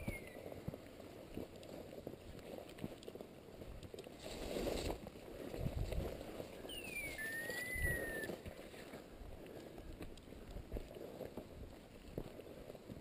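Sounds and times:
footsteps crunching through scrub: 0.0s - 13.0s
person whistling a gliding note: 6.7s - 8.3s.

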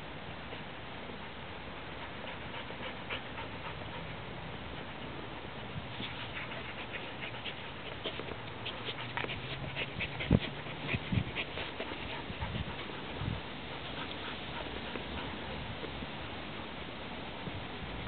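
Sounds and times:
dog panting: 1.7s - 16.0s
paws scratching sandy soil: 1.9s - 16.4s.

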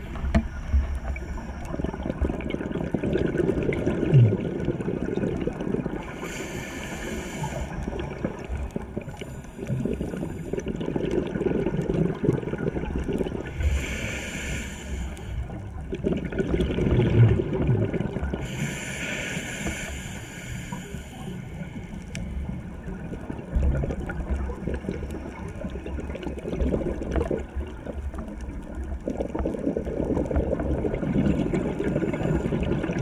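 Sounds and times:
exhaled bubbles gurgling: 0.0s - 33.0s
regulator inhalation hiss: 6.0s - 8.0s, 13.6s - 15.5s, 18.4s - 22.4s.

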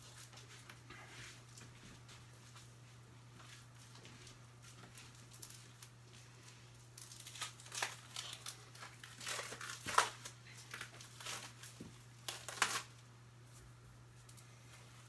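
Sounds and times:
plastic packaging crinkling: 4.7s - 13.0s.

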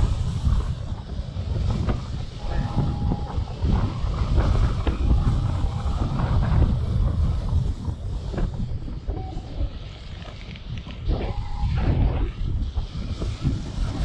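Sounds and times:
wind buffeting microphone: 0.0s - 14.0s
faint short steady tones: 2.4s - 3.6s.

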